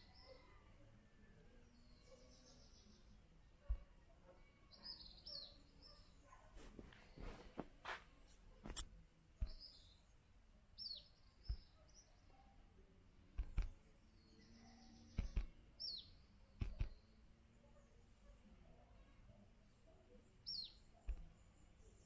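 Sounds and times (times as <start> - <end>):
small bird chirping: 0.0 - 8.0, 8.6 - 10.2, 10.8 - 12.6, 13.4 - 22.0
faint background noise: 0.0 - 22.0
soft clicks and knocks: 13.3 - 13.8, 16.6 - 17.0.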